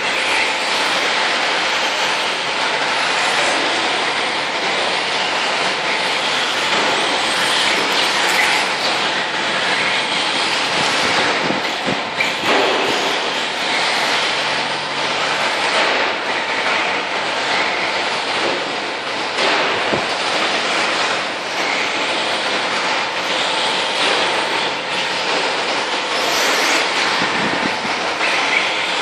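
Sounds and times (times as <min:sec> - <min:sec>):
rc truck motors whirring: 0:21.6 - 0:29.0.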